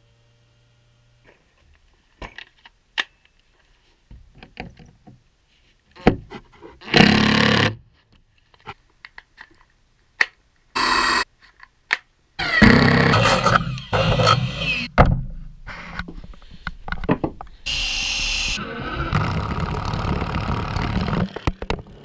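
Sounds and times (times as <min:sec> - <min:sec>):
cordless drill driving screws: 0:12.4 - 0:14.9.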